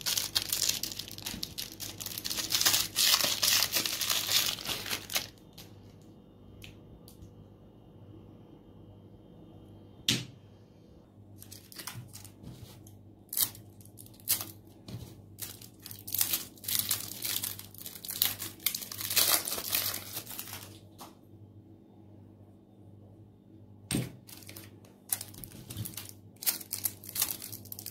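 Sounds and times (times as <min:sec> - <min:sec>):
plastic wrapper crinkling and tearing: 0:00.0 - 0:06.0, 0:11.4 - 0:21.1, 0:24.2 - 0:27.9.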